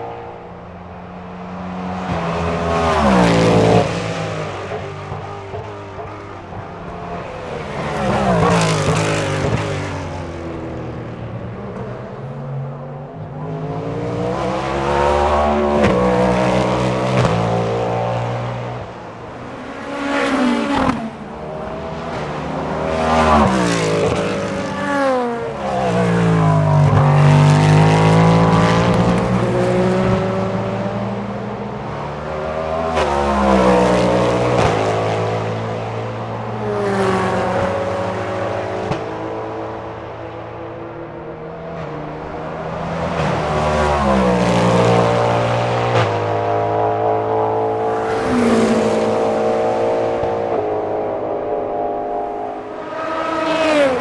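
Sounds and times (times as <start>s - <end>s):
race car engine passing: 13.4s - 54.0s.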